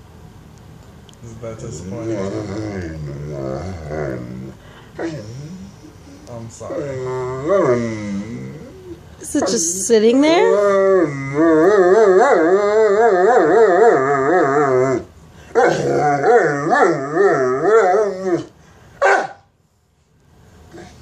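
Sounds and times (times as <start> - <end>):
dog howling moans: 1.8 - 9.1, 10.3 - 18.6.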